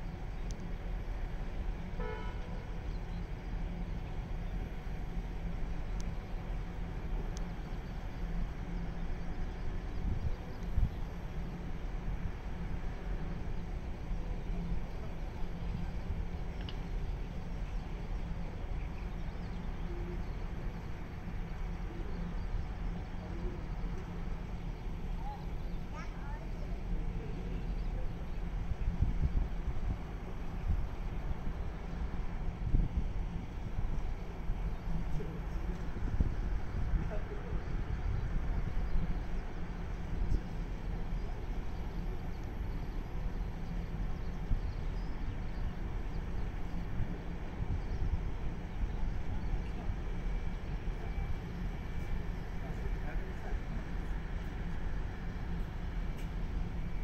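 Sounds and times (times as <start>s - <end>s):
wind buffeting microphone: 8.2s - 19.3s, 27.7s - 56.9s.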